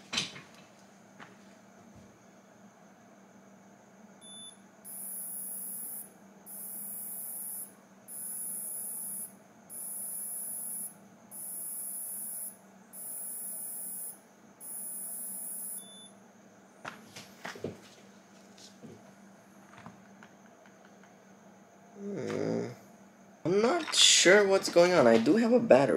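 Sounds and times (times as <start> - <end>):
high-pitched electronic beeps: 4.2 - 16.1.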